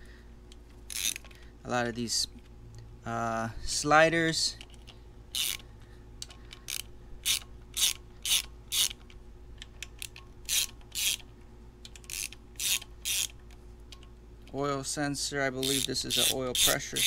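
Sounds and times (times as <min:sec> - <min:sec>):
ratchet wrench clicking: 0:00.9 - 0:01.4, 0:04.6 - 0:05.6, 0:06.2 - 0:09.0, 0:09.8 - 0:11.3, 0:11.9 - 0:14.1, 0:15.6 - 0:17.0.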